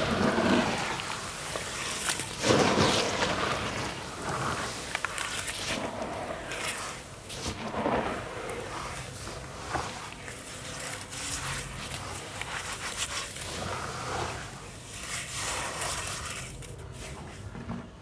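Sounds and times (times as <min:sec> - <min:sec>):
wet slurry squelching and sloshing: 0:00.0 - 0:16.8.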